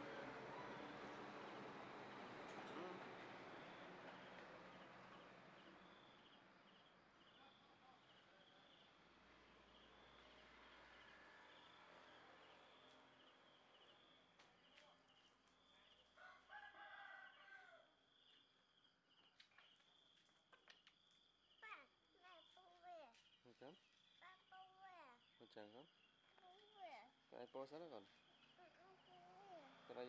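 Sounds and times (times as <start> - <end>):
rooster crowing: 16.2 - 17.9.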